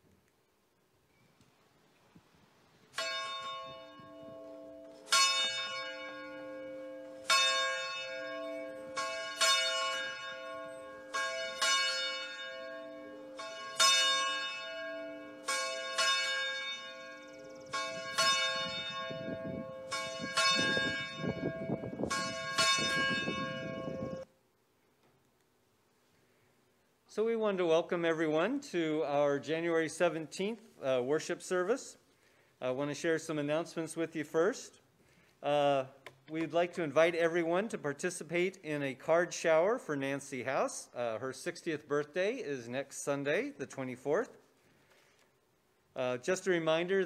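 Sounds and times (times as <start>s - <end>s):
church bell tolling: 2.9s - 24.3s.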